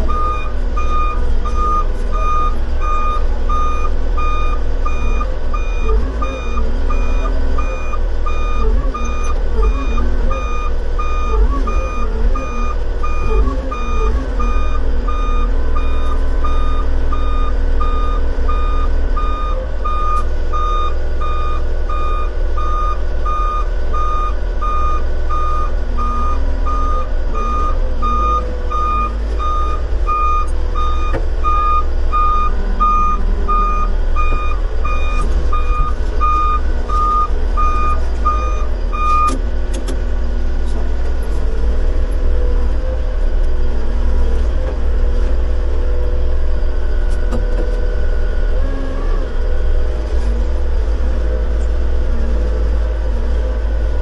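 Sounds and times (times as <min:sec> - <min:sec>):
low engine rumble: 0:00.0 - 0:54.0
reversing alarm beeps: 0:00.1 - 0:39.4.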